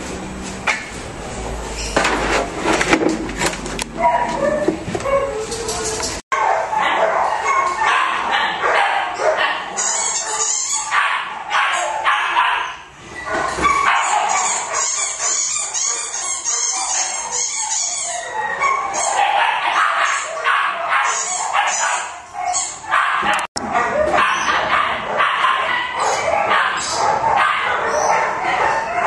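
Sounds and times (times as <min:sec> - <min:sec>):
dog yapping: 0:04.0 - 0:29.0.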